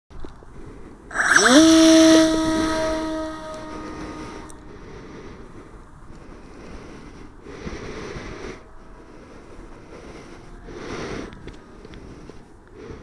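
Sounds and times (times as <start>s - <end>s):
small electric plane motor whine: 1.1s - 5.5s.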